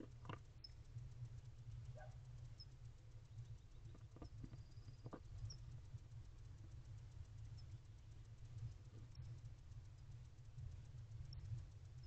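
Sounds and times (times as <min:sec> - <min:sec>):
faint scratches and rustles: 0:00.0 - 0:12.0
steady low hum: 0:00.0 - 0:12.0.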